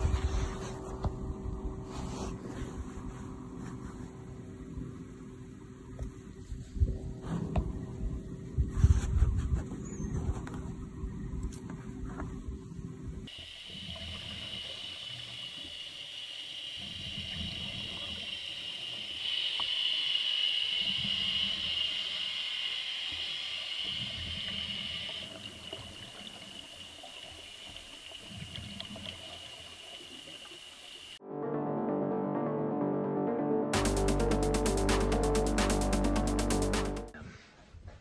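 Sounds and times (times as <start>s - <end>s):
underwater hiss with high whine: 13.3s - 31.2s.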